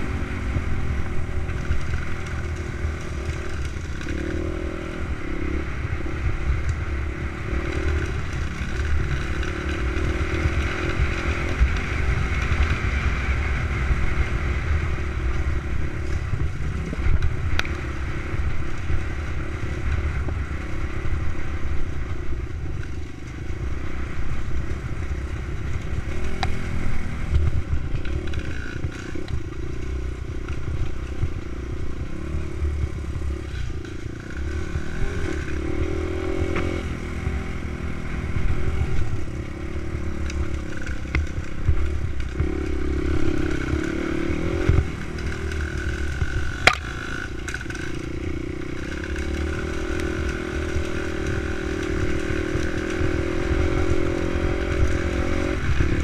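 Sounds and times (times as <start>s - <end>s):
low wind rumble on microphone: 0.0s - 56.0s
dirt bike engine revving: 32.1s - 56.0s.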